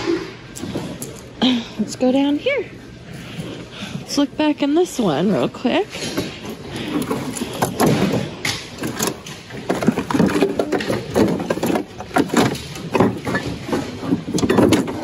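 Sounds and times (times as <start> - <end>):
household objects clattering: 5.9 - 15.0.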